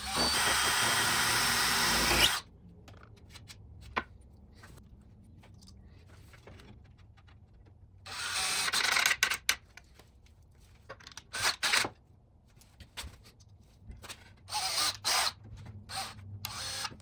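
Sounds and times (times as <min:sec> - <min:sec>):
cordless drill boring into wood: 0:00.0 - 0:02.4, 0:08.1 - 0:09.0, 0:14.5 - 0:17.0.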